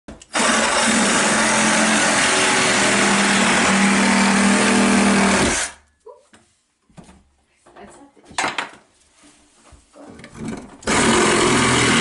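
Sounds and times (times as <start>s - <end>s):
reciprocating saw cutting fiberglass: 10.8s - 12.0s.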